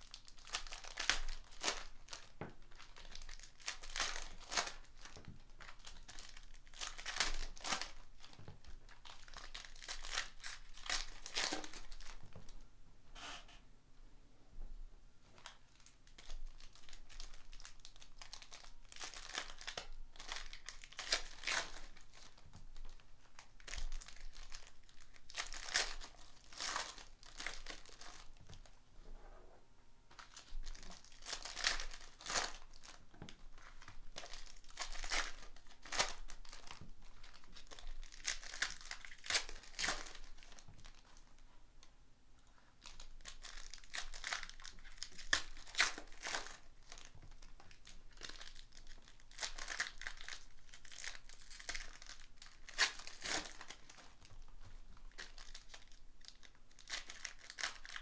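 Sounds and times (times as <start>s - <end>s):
foil packs crinkling and tearing: 0.0s - 12.5s, 15.4s - 28.7s, 30.2s - 41.2s, 42.8s - 58.0s.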